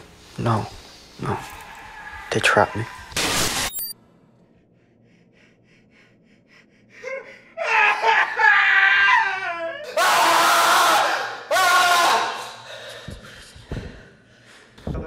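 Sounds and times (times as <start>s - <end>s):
man wailing and sobbing: 7.0s - 12.2s
man screaming: 7.6s - 12.5s.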